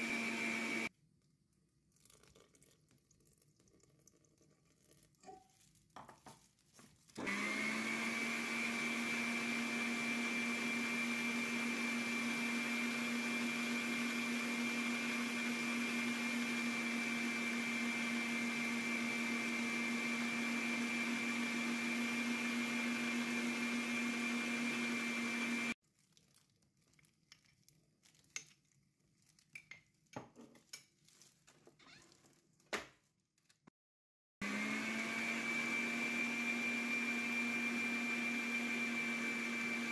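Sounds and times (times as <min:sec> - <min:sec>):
stand mixer whisking batter: 0:00.0 - 0:00.9, 0:07.2 - 0:25.8, 0:34.4 - 0:39.9.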